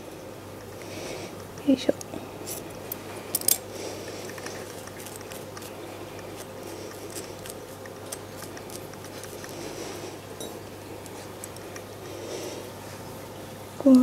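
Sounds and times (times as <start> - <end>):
low steady hum: 0.0 - 14.0
scissors snipping fur: 1.5 - 9.7, 11.0 - 11.9.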